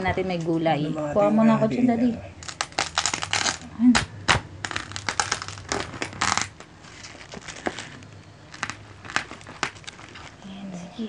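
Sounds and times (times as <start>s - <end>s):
knife cracking crispy skin: 2.4s - 6.6s.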